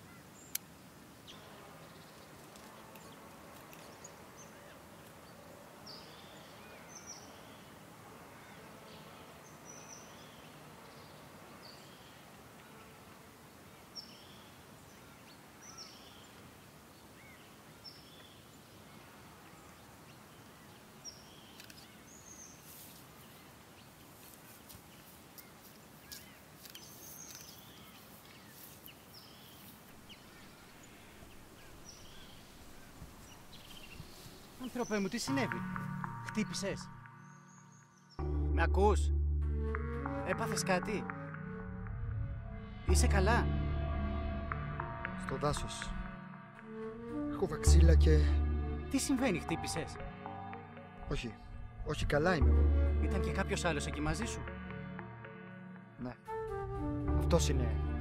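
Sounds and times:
bird chirping: 13.7 - 22.7, 24.9 - 38.7.

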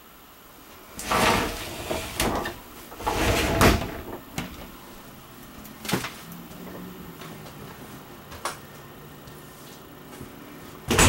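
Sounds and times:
sliding door swish: 1.0 - 4.1.

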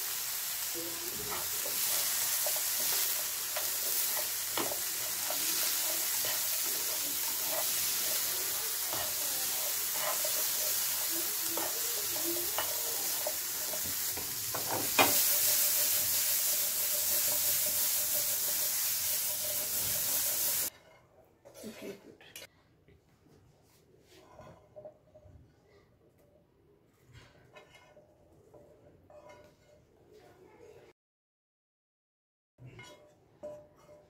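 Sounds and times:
chickpeas sizzling in oil: 0.0 - 20.7
spatula scraping pan: 0.0 - 22.0, 24.0 - 25.2, 27.0 - 30.1, 32.6 - 34.0.

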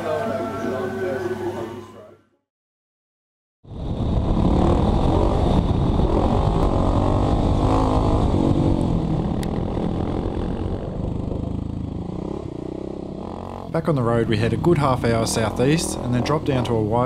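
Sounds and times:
dirt bike engine running: 3.9 - 17.0.

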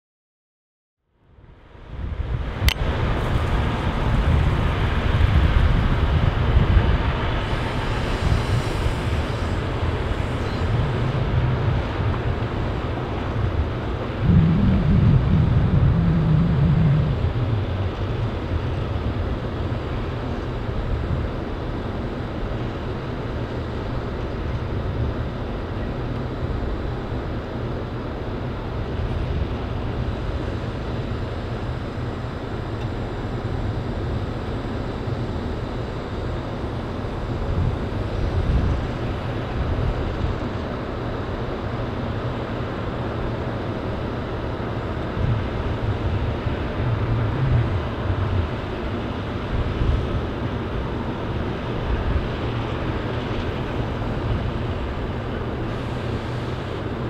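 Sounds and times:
truck diesel engines running: 1.7 - 57.0.

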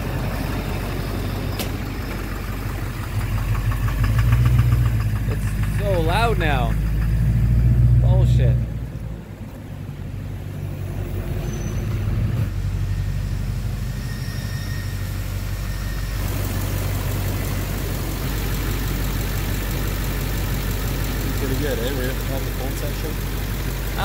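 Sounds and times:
diesel engine knocking: 0.0 - 9.4, 15.4 - 24.0.

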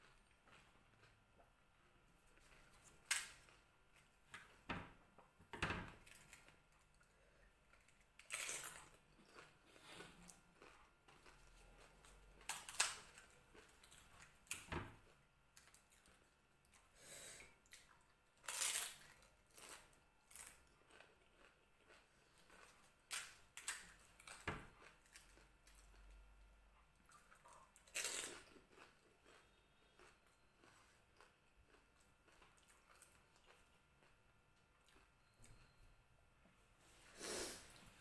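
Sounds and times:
crunching and chewing: 0.0 - 16.9, 17.5 - 35.8
puri shells cracking: 3.0 - 3.4.

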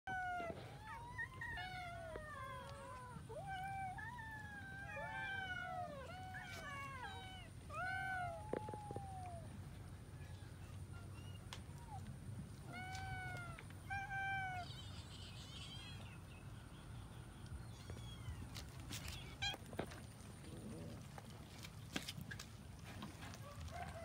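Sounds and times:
cats meowing: 0.1 - 9.5, 11.1 - 16.0, 17.7 - 21.1.

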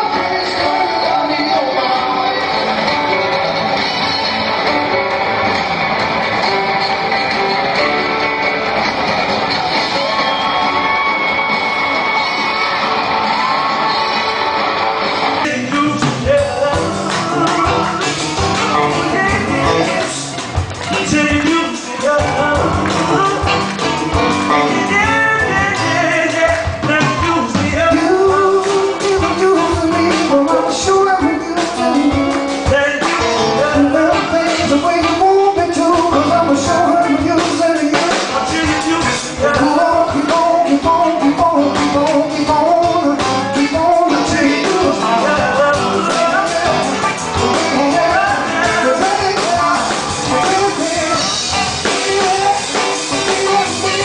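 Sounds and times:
man singing: 0.0 - 3.4, 15.4 - 54.0
electric guitar: 0.0 - 54.0
live rock band playing: 0.0 - 54.0.

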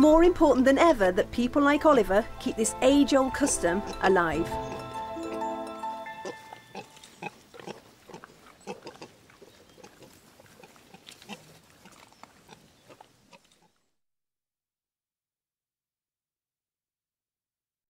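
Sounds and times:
pigs grunting: 6.3 - 13.8.

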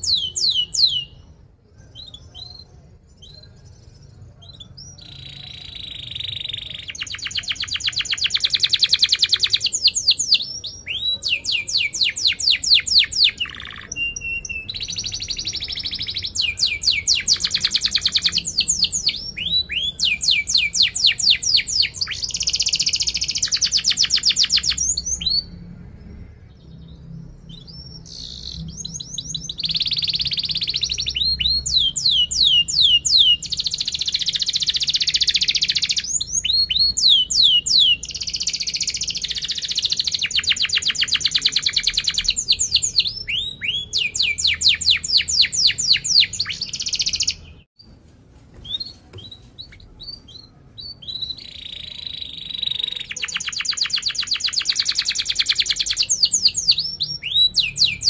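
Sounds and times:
canary singing trills: 0.0 - 25.7, 26.6 - 47.9, 48.6 - 58.0.

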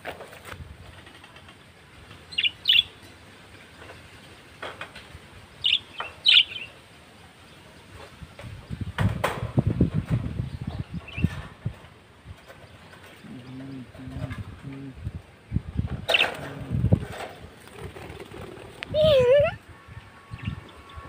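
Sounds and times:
budgerigars chirping: 5.6 - 6.7.

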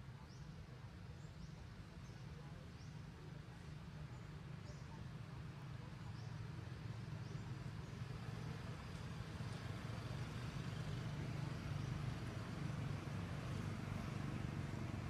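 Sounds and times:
vehicle engine rumble: 0.0 - 15.0.

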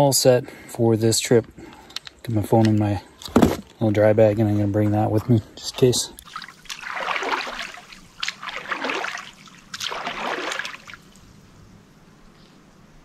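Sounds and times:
water splashing from paddling: 6.1 - 11.2.

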